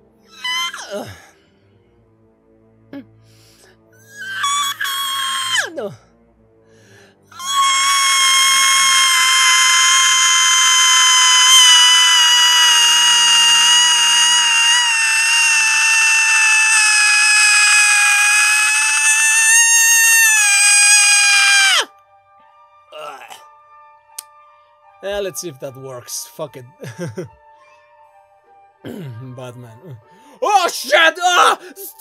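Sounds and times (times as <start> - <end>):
man screaming: 4.2 - 6.0, 7.4 - 21.9, 23.0 - 23.4, 30.4 - 31.9.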